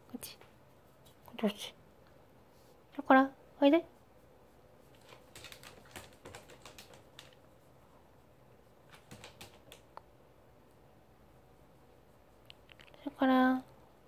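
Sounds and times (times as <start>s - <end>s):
dog claws clicking on plastic: 5.0s - 7.4s, 8.9s - 9.9s.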